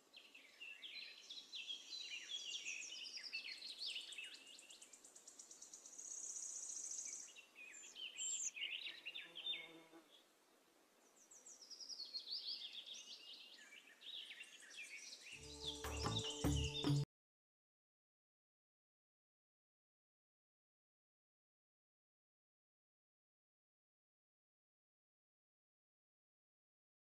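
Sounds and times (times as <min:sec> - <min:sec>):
small birds chirping: 0:00.0 - 0:10.3, 0:11.0 - 0:17.1.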